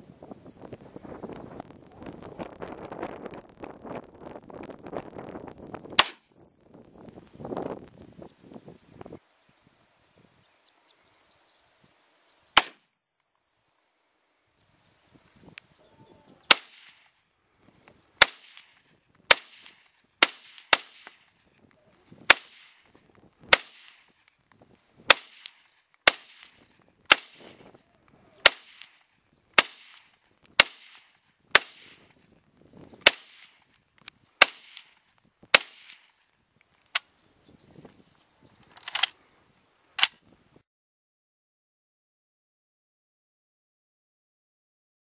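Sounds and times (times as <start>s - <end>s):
rifle shots with echo: 6.0s - 6.2s, 12.6s - 12.8s, 16.5s - 17.1s, 18.2s - 21.3s, 22.3s - 22.9s, 23.5s - 24.1s, 25.1s - 27.6s, 28.4s - 29.0s, 29.6s - 32.1s.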